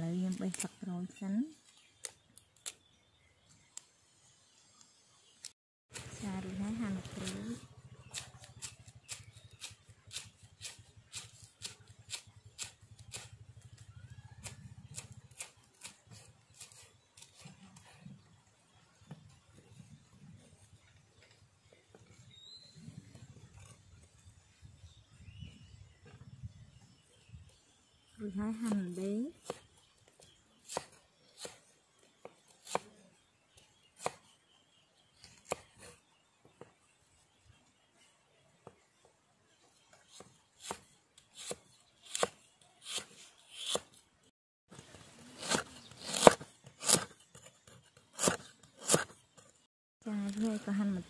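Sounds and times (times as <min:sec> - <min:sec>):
cleaver chopping on wooden block: 0:34.0 - 0:34.2, 0:41.4 - 0:43.8, 0:45.4 - 0:47.1, 0:48.2 - 0:49.1.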